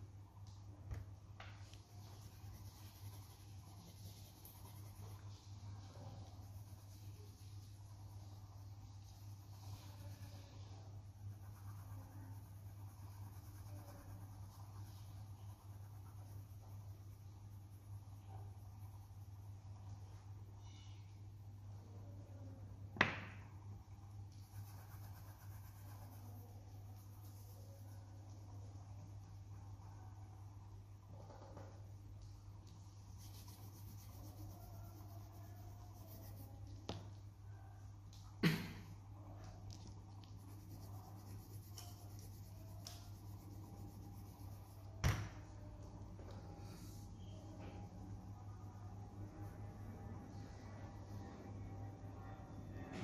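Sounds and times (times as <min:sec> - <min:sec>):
low electrical hum: 0:00.0 - 0:53.0
pencil scratching on paper: 0:01.6 - 0:20.0, 0:24.3 - 0:30.4, 0:33.0 - 0:36.8, 0:40.0 - 0:45.0.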